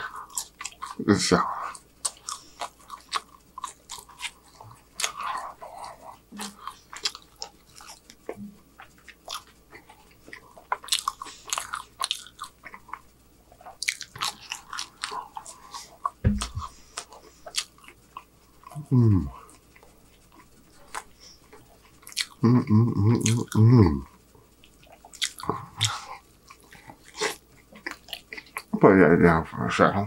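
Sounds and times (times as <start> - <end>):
chewing fries: 0.0 - 28.9
low thump: 16.2 - 16.7.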